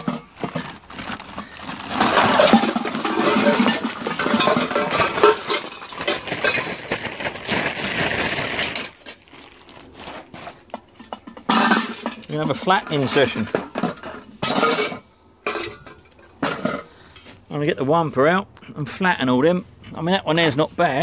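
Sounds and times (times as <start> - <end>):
brass objects clattering onto paving: 0.0 - 9.3, 10.1 - 17.4.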